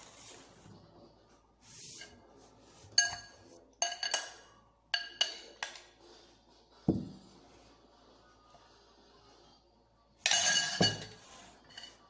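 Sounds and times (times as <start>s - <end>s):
cutlery clinking on plate: 2.9s - 5.9s, 10.2s - 12.0s.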